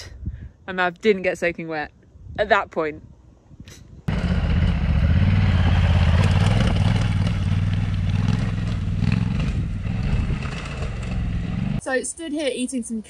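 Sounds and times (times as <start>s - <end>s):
motorcycle engine running: 4.1s - 11.8s.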